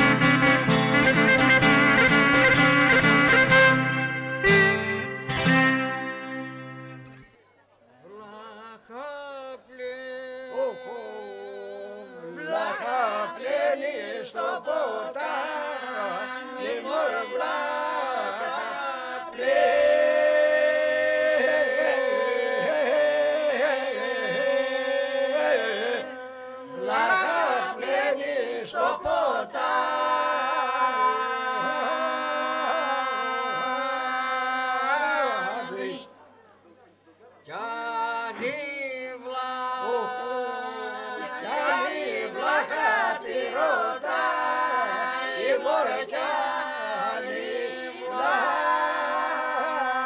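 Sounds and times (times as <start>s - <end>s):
group singing polyphonic folk song: 0.0s - 7.3s, 9.8s - 36.2s, 37.5s - 50.0s.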